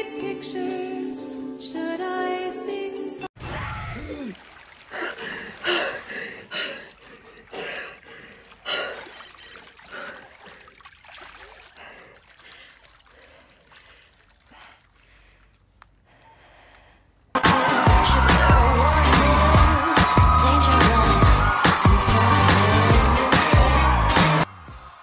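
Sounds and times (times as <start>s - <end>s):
bathwater splashing: 3.9s - 15.8s.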